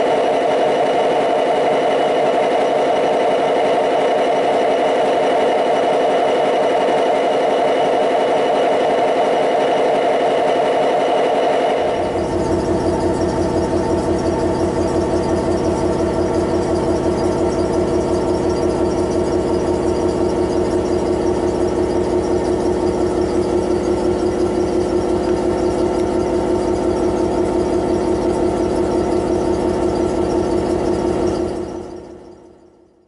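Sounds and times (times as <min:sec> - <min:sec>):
steady whine: 0:00.0 - 0:32.7
locomotive diesel engine idling: 0:11.8 - 0:31.6.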